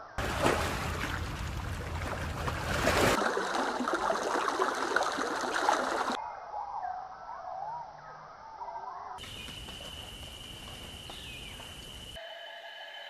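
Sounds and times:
water splashing and trickling: 0.2 - 6.2.

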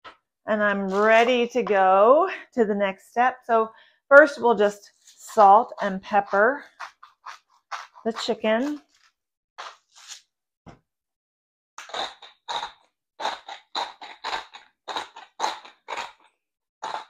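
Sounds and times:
salt grinder crunches: 6.6 - 10.2, 11.8 - 17.0
pepper grinder ratcheting crunches: 11.8 - 17.0.

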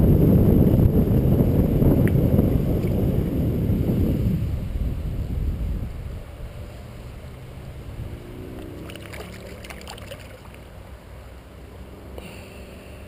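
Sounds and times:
wind on microphone: 0.0 - 10.6
flowing river water: 6.0 - 13.0
fish splashing at surface: 8.6 - 10.7.

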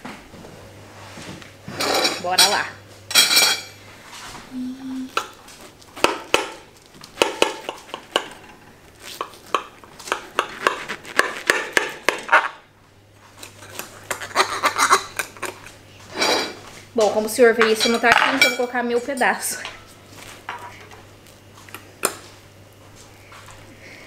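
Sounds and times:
plates and forks clattering: 1.8 - 3.8, 17.6 - 19.8.

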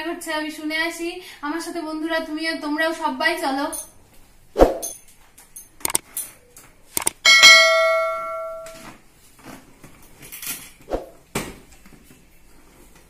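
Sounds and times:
quick clicks: 5.8 - 6.2, 7.0 - 7.2
bright bell ding: 7.2 - 8.9.

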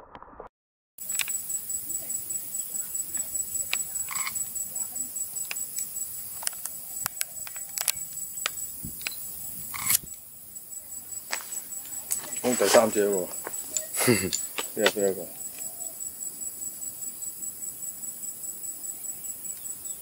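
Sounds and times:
sharp clicks: 1.0 - 1.6, 3.1 - 10.2, 11.5 - 15.7
insects trilling: 1.0 - 20.0.

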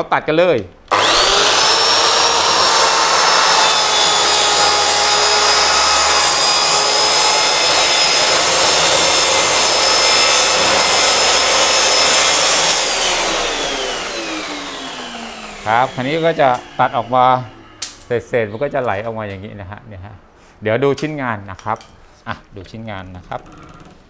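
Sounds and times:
dust extractor running: 0.9 - 18.1
track saw whining: 0.9 - 19.0.

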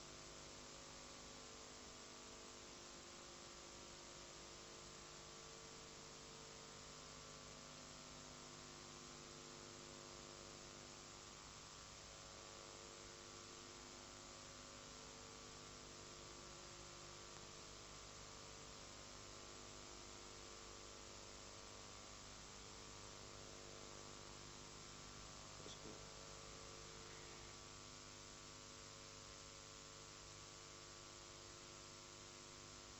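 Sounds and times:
steady electrical hum: 0.0 - 32.9
faint hiss: 24.4 - 29.2.

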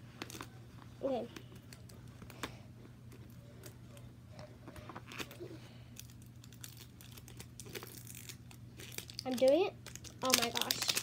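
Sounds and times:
packaging crinkling and rustling: 4.8 - 5.4, 6.0 - 11.0.

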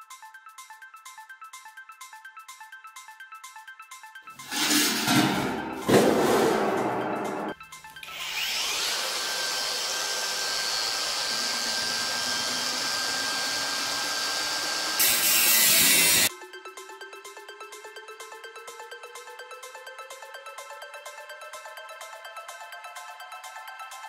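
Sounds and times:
angle grinder grinding steel: 4.4 - 16.3.

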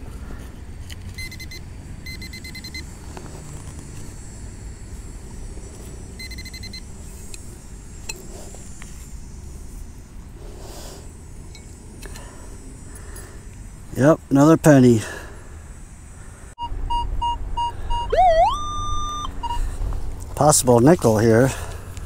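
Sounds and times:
metal detector short beeps: 1.2 - 2.8, 6.2 - 6.8, 16.6 - 19.6.

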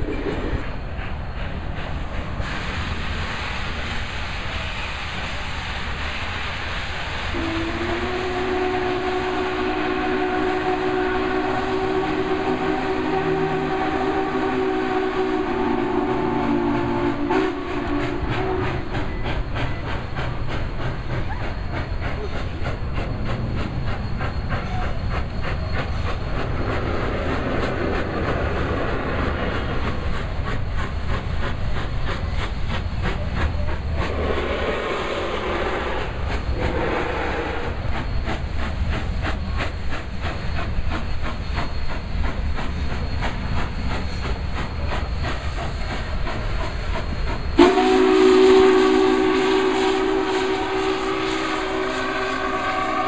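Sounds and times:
steam hiss: 0.0 - 53.0
steam train low rumble: 0.0 - 53.0
steam whistle blast: 7.3 - 18.9, 47.5 - 53.0.

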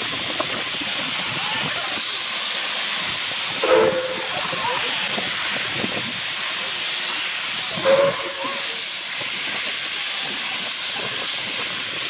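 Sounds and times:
steam hissing from cylinders: 0.0 - 12.0
steam locomotive: 0.0 - 12.0.

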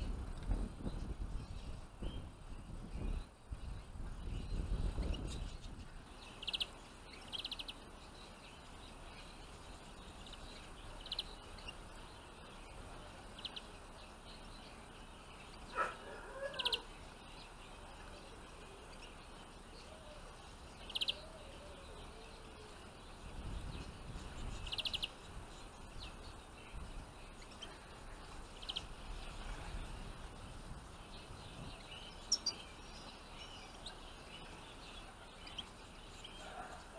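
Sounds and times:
faint outdoor hiss: 0.0 - 36.9
finches chirping: 0.8 - 36.9.

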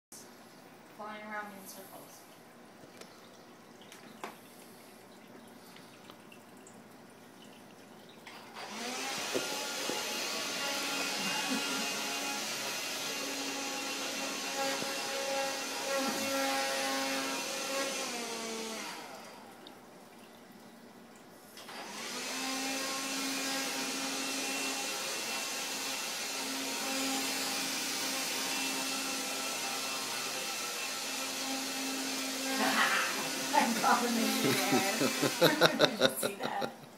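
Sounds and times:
handheld vacuum running: 8.6 - 19.4, 21.6 - 36.6.

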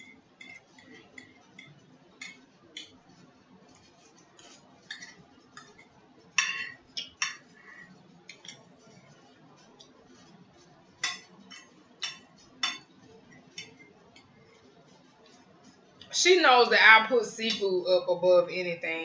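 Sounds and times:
fork clinking and scraping on plate: 0.0 - 7.6, 8.2 - 10.3, 11.0 - 15.8.

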